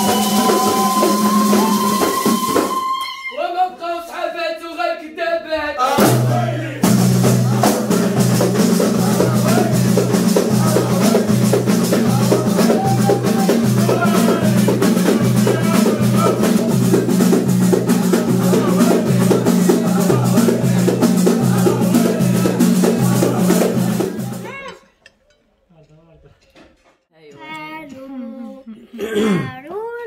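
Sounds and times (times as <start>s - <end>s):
men singing together: 3.8s - 24.5s
frame drums with jingles: 6.1s - 24.6s.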